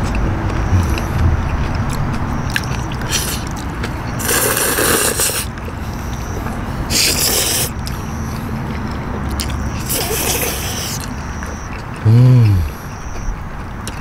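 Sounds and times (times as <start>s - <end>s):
chewing: 0.0s - 14.0s
people slurping noodles: 4.2s - 5.5s, 6.9s - 7.8s, 9.8s - 11.1s.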